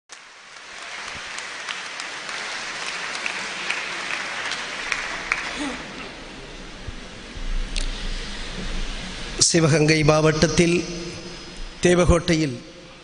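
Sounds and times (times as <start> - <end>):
audience applauding: 0.1 - 6.8.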